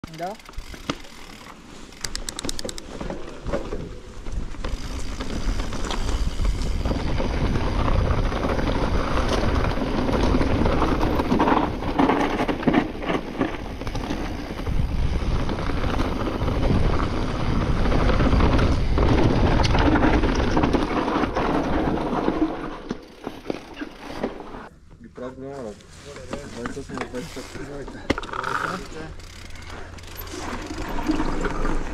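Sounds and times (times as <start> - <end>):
wind rumbling on microphone: 3.4 - 22.8.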